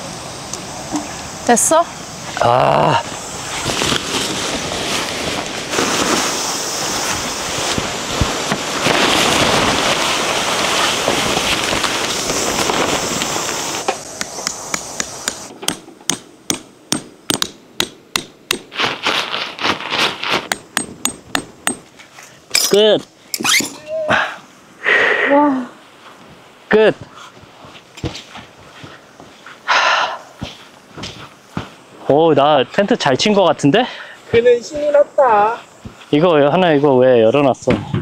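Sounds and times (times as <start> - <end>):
dense rushing noise: 0.0 - 15.5.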